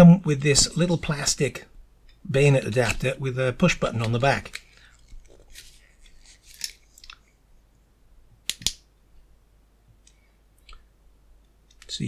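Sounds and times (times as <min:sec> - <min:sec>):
plastic rubbing and rustling: 0:03.9 - 0:07.1
sharp plastic click: 0:08.5 - 0:08.8.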